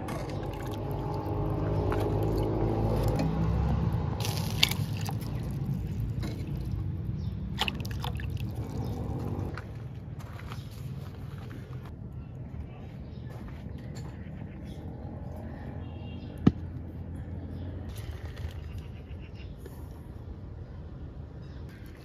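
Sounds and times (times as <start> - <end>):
water pouring and splashing: 0.3 - 3.2, 4.2 - 9.5.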